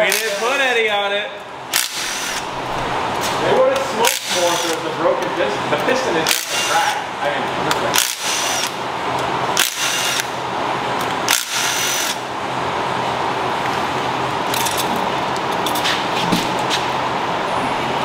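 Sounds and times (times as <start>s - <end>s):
cordless drill spinning: 1.8s - 2.5s, 4.2s - 4.7s, 6.3s - 6.8s, 8.0s - 8.8s, 9.6s - 10.3s, 11.3s - 12.2s.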